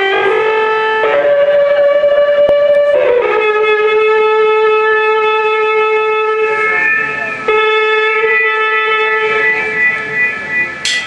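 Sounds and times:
reedy instrument long notes: 0.0s - 11.0s.

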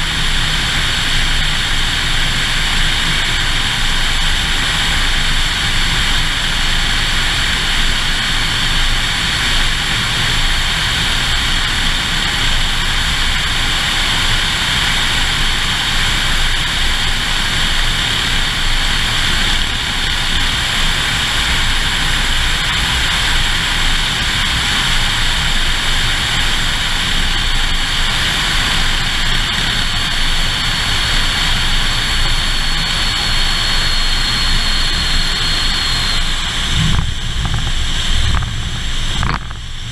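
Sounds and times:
propeller plane engine: 0.0s - 39.9s
wind on microphone: 28.2s - 39.9s.

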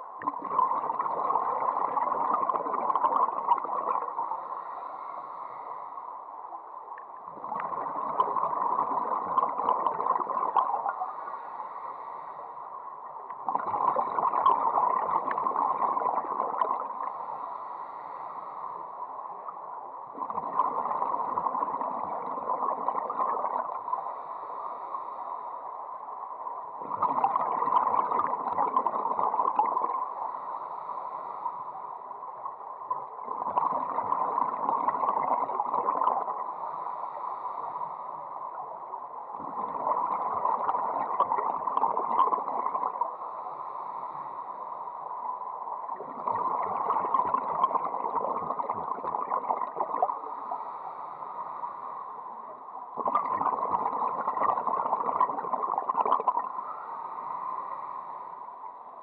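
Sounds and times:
bubbling underwater exhalations: 53.0s - 56.6s.

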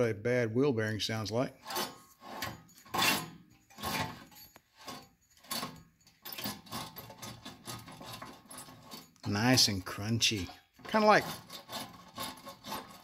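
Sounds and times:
wheel bearing grinding: 1.6s - 13.0s.

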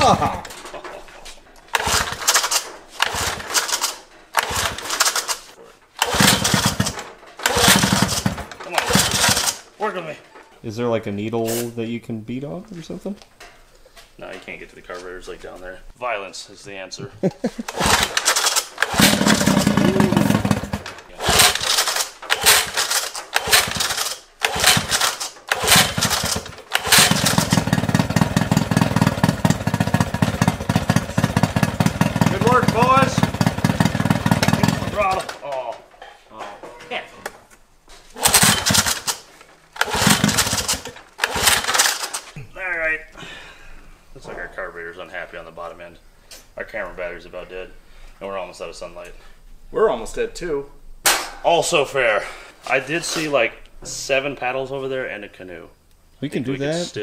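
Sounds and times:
outboard motor cranking: 1.7s - 9.7s, 17.7s - 35.5s, 38.2s - 42.3s.

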